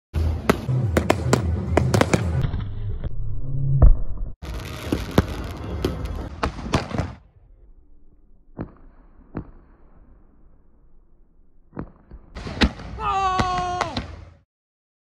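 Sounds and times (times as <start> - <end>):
fireworks bangs: 4.4 - 7.2
fireworks crackling: 4.4 - 7.2
single fireworks pops: 4.8 - 7.2.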